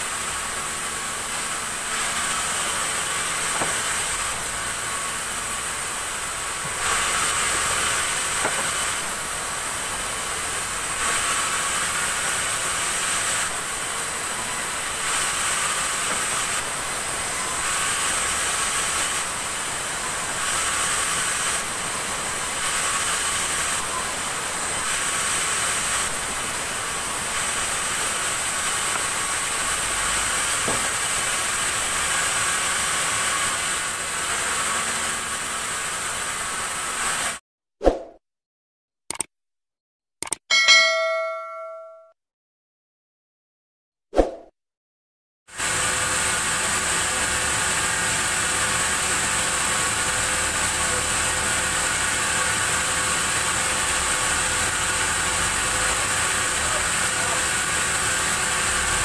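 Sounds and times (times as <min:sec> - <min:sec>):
saw rasping through wood: 0:00.2 - 0:37.4.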